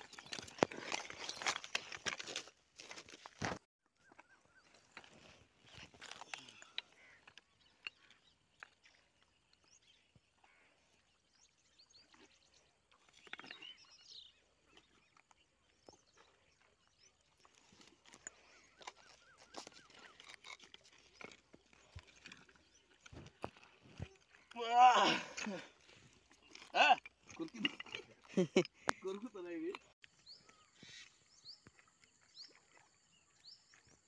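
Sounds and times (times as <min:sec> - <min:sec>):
faint bird chirps: 0:03.9 - 0:23.3, 0:28.6 - 0:34.0.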